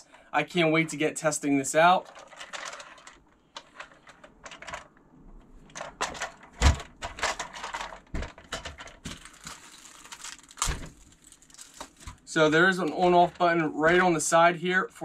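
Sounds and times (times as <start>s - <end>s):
plastic toy clicks and rattles: 2.0s - 4.9s.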